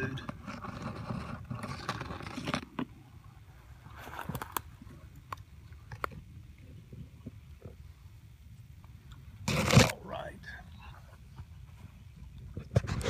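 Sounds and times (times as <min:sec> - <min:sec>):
leaves rustling and crackling: 0:03.5 - 0:06.0.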